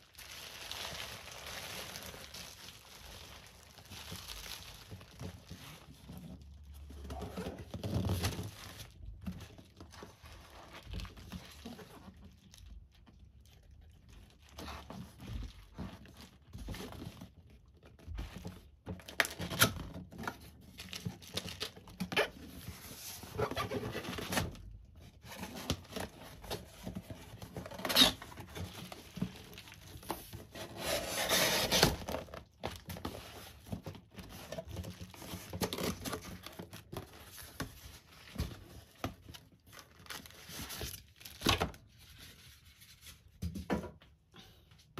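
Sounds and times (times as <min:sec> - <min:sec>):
bubble wrap crinkling: 0:00.0 - 0:43.4
cardboard box rustling and scraping: 0:22.1 - 0:38.9.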